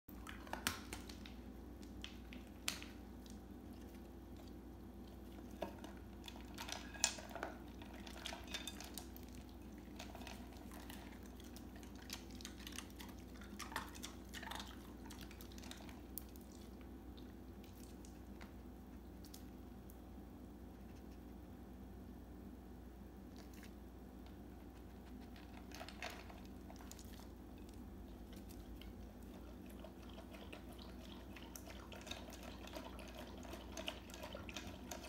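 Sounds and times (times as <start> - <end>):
low steady hum: 0.1 - 35.0.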